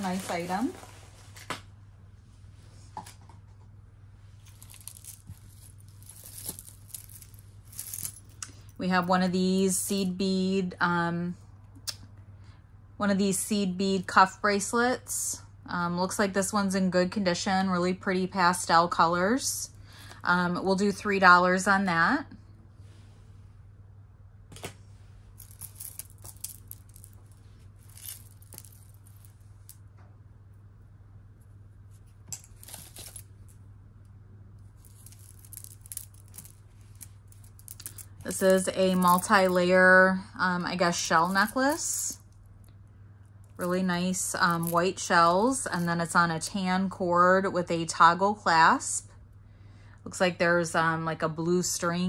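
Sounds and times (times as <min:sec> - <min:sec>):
cloth rustling: 0:00.0 - 0:01.5
steady low hum: 0:00.0 - 0:52.0
beads and metal jewelry clicking: 0:04.4 - 0:08.8, 0:25.4 - 0:29.8, 0:32.4 - 0:33.6, 0:34.7 - 0:39.6, 0:41.0 - 0:42.2.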